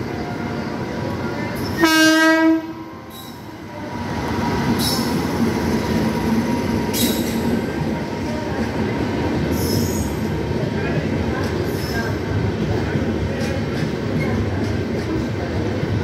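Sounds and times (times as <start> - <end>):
train rumbling past: 0.0 - 16.0
train horn blast: 1.8 - 2.8.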